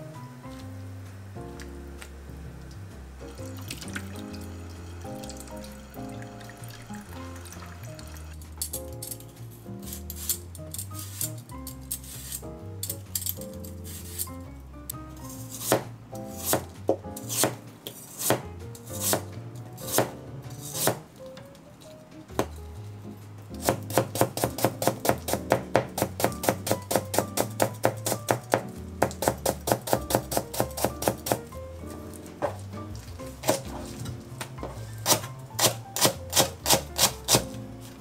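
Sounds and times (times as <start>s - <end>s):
soft background music: 0.0s - 38.0s
knife chopping on cutting board: 15.6s - 21.1s, 22.3s - 22.6s, 23.5s - 31.5s, 33.3s - 37.6s.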